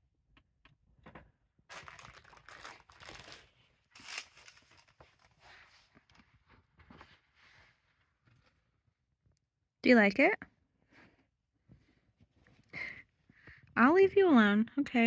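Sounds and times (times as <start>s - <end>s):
fabric bag rustling: 1.7s - 5.9s.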